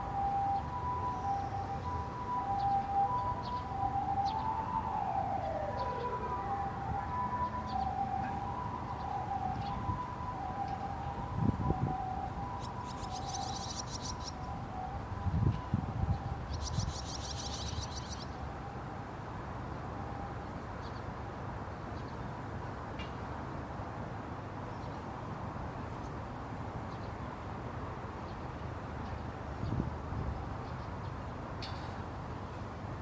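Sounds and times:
swallow fledglings twittering: 0:12.6 - 0:14.4, 0:16.5 - 0:18.3.

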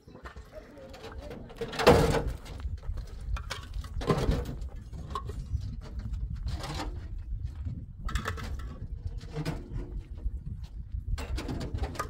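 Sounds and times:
concrete blocks clunking and scraping: 0:00.0 - 0:12.0.

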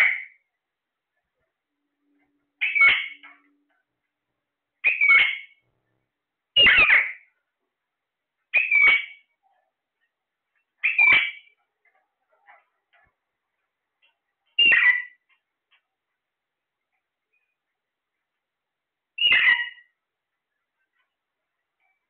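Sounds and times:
parakeet harsh calls: 0:00.0 - 0:00.4, 0:02.6 - 0:03.3, 0:04.8 - 0:05.6, 0:06.6 - 0:07.3, 0:08.5 - 0:09.2, 0:10.8 - 0:11.6, 0:14.6 - 0:15.2, 0:19.2 - 0:19.9.

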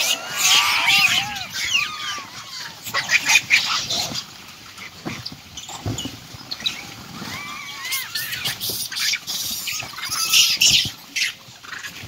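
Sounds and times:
monkeys squealing and screeching: 0:00.0 - 0:04.2, 0:06.6 - 0:12.0.

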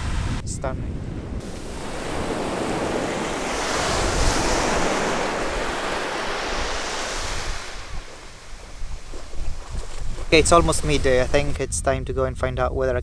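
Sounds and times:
wind buffeting microphone: 0:00.0 - 0:13.0
small waves washing up sandy shore: 0:01.4 - 0:11.4.

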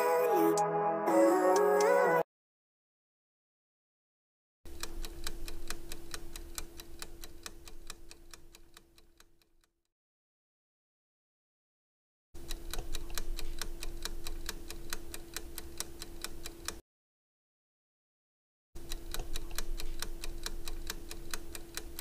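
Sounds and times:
clock-like ticking: 0:04.7 - 0:09.7, 0:12.4 - 0:16.8, 0:18.8 - 0:22.0.

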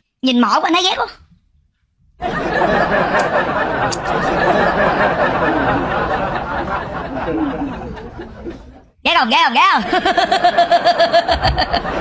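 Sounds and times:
crowd chattering and laughing: 0:02.2 - 0:09.0, 0:09.8 - 0:12.0.

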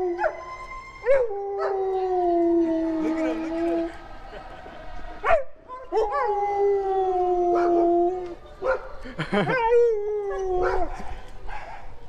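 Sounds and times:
dog howling: 0:00.0 - 0:04.0, 0:09.6 - 0:11.0.

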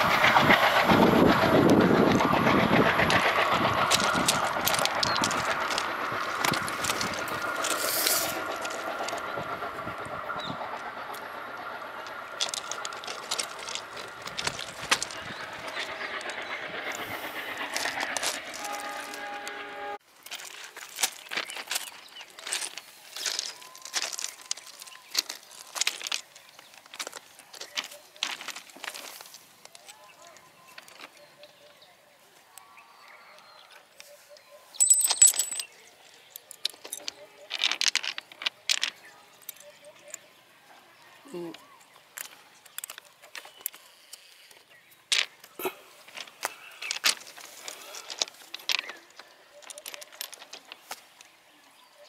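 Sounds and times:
footsteps crunching on stones: 0:03.9 - 0:09.2, 0:12.3 - 0:15.9, 0:20.2 - 0:30.0, 0:36.6 - 0:39.0, 0:46.1 - 0:51.4
stones knocking: 0:37.5 - 0:39.0.

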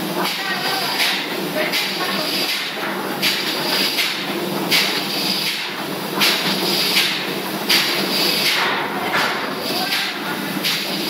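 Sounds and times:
machinery hum and surging hiss: 0:00.0 - 0:11.0.

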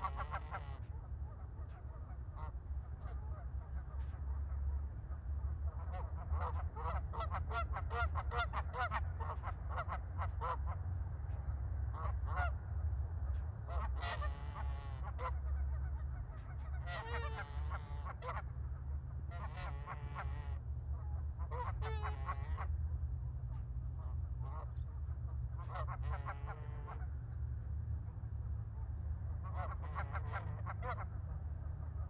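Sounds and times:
geese honking: 0:00.0 - 0:04.7, 0:05.7 - 0:10.6, 0:13.7 - 0:18.5, 0:19.3 - 0:22.7, 0:25.6 - 0:27.1, 0:29.4 - 0:31.2
steady low rumble: 0:00.0 - 0:32.0.

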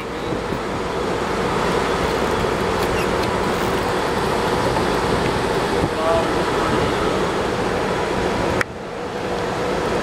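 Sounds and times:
boat engine rumbling: 0:00.0 - 0:10.0
water noise: 0:00.0 - 0:10.0.

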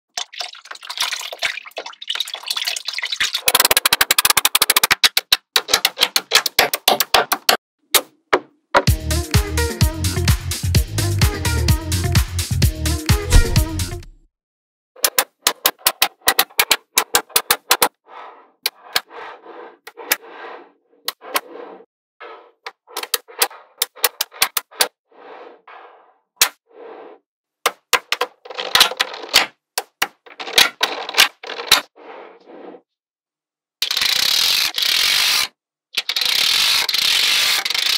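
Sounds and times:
water pouring and splashing: 0:00.1 - 0:03.5.

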